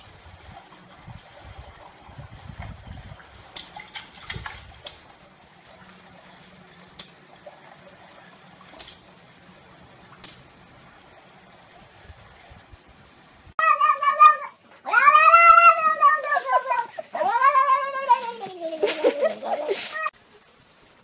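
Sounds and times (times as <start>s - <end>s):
water splashing: 0.0s - 12.7s.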